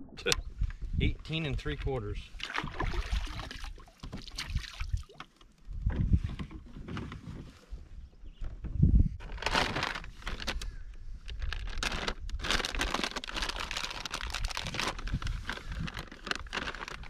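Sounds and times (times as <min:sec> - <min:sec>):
candy wrapper crinkling: 0:11.3 - 0:17.0.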